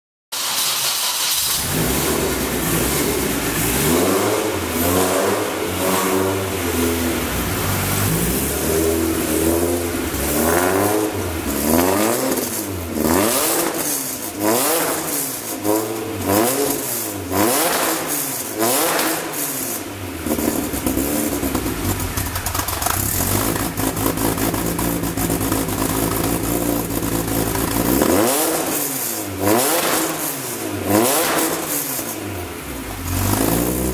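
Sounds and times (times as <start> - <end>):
car engine revving: 0.4 - 33.9
car engine idling: 1.2 - 14.5, 19.8 - 28.8.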